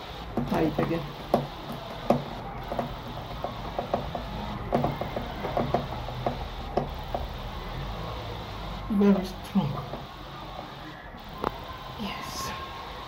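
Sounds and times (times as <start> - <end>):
screwdriver clicking and knocking: 0.3 - 7.4.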